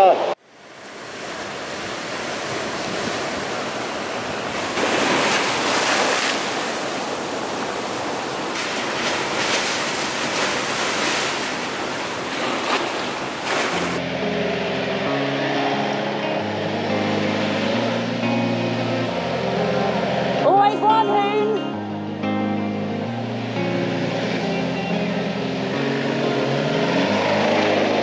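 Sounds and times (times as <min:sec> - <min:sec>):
surf crashing against metal hull: 0:01.2 - 0:14.0
background music: 0:14.0 - 0:28.0.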